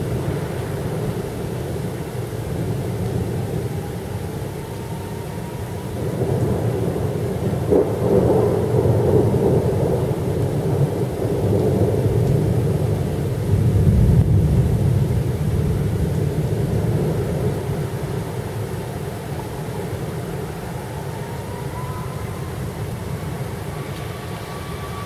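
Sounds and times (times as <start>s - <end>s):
rain: 0.0s - 25.0s
thunder rolling: 5.0s - 25.0s
sharp thunder crack: 7.6s - 10.0s.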